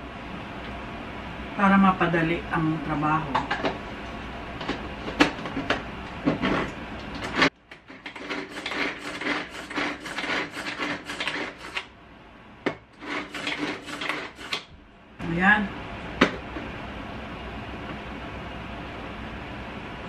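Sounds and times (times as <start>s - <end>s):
hand-pulled chopper whirring: 8.0s - 11.9s.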